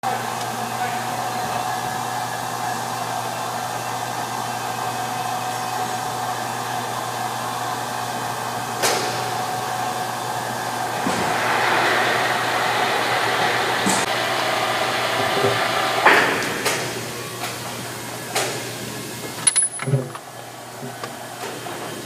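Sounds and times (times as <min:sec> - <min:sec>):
thin steady whine: 0:05.2 - 0:18.0
machine whirring: 0:08.4 - 0:17.7.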